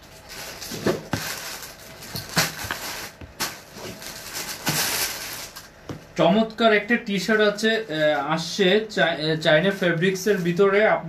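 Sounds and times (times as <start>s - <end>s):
cloth and packaging rustling: 0.0s - 6.2s.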